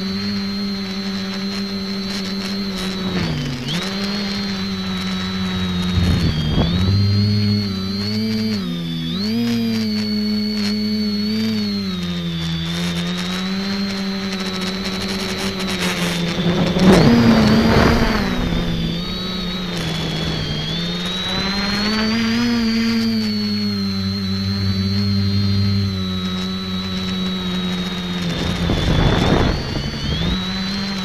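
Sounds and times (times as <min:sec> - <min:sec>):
drone motors buzzing: 0:00.0 - 0:31.0
rush of air noise: 0:05.6 - 0:08.1.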